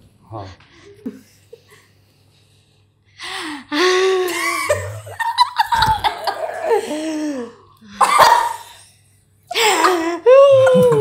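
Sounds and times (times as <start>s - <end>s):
people laughing loudly: 4.3s - 7.1s.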